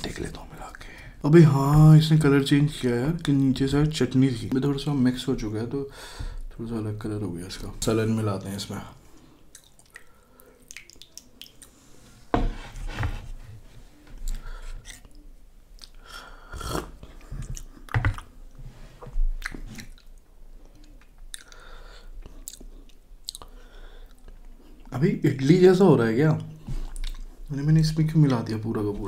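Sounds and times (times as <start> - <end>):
close chewing with wet smacks: 9.4 - 11.8, 14.3 - 16.0, 16.7 - 18.4, 19.4 - 21.6, 22.2 - 24.9, 26.4 - 27.4.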